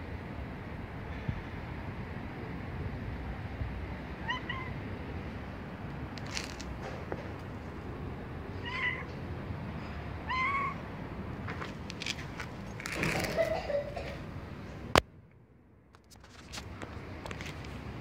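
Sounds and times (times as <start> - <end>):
cat meowing: 4.2 - 4.8, 8.5 - 9.2, 10.2 - 10.8.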